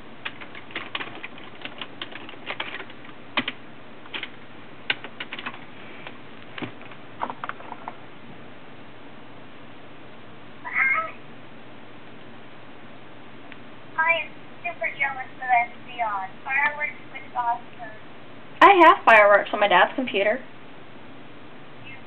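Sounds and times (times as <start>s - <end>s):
cat meowing: 10.6s - 11.2s.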